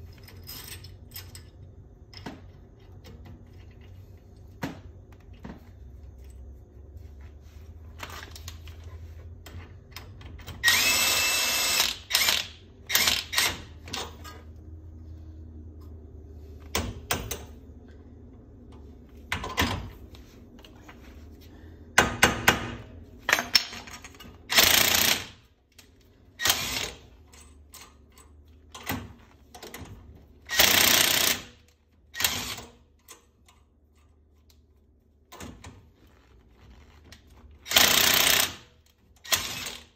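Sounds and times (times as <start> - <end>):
impact wrench hammering: 22.0 - 22.9.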